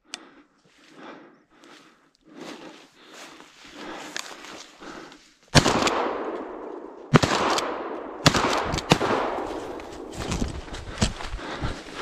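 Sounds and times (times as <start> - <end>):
shotgun shots with echo: 5.6 - 9.6.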